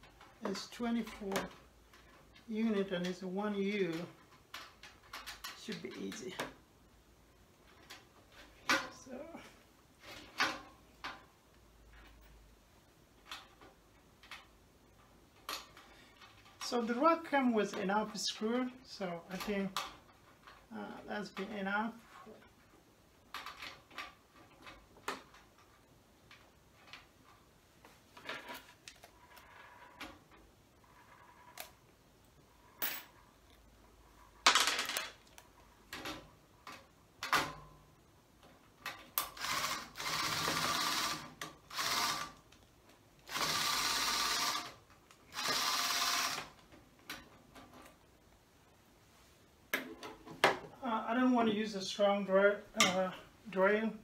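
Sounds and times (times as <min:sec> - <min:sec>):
cordless screwdriver running: 0:39.4 - 0:42.3, 0:45.3 - 0:46.5.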